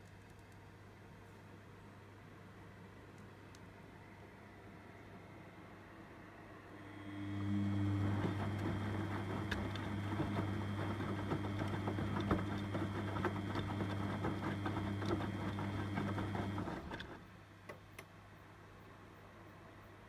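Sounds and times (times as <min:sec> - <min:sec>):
washing machine motor hum: 0:06.8 - 0:17.2.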